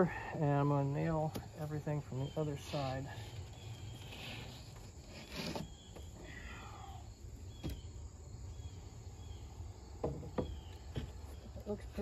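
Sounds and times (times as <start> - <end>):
insects chirping: 0.0 - 12.0
plywood scraping rustle: 1.3 - 6.5
plywood knock on sawhorses: 10.0 - 11.2.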